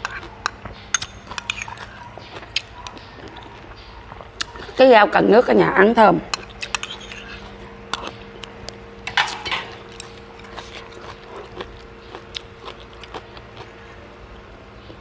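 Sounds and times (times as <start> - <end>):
spoon and chopsticks clicking on bowls: 0.0 - 1.9
chewing: 0.0 - 4.8, 6.3 - 8.8, 9.7 - 14.0
faint steady hum: 0.0 - 15.0.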